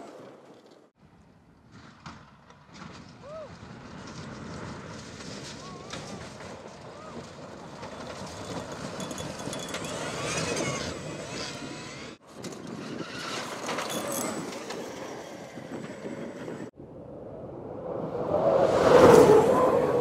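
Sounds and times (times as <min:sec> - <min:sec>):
tyres on gravel: 0:03.8 - 0:15.2.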